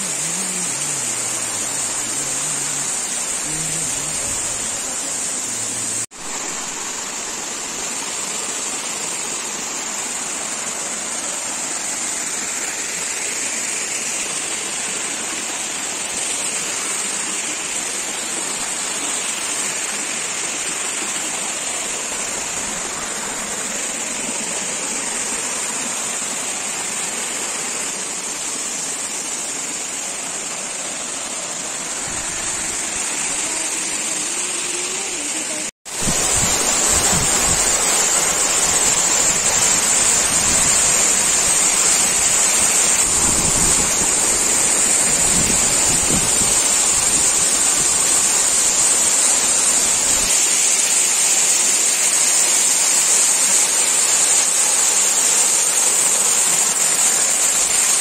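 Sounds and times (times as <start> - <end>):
high-pitched hiss: 0.0 - 58.0
waterfall rushing: 0.0 - 58.0.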